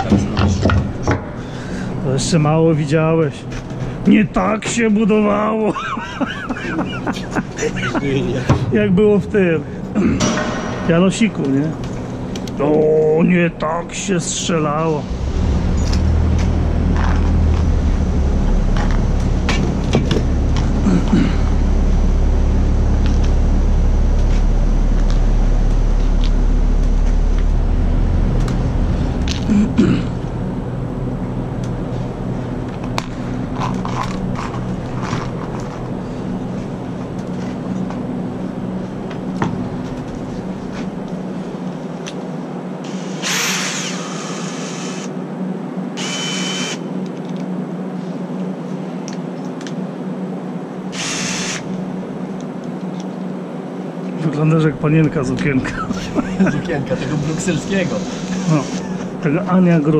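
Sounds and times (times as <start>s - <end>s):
loud steady low hum: 0.0s - 59.9s
power drill running: 42.8s - 45.1s, 46.0s - 46.8s, 50.9s - 51.8s, 57.1s - 58.9s.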